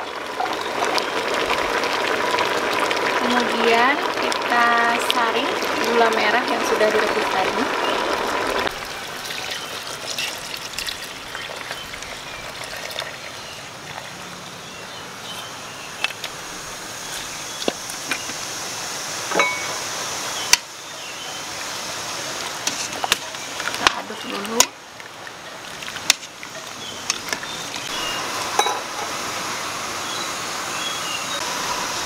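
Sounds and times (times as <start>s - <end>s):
syrup trickling through a strainer: 9.1s - 14.2s.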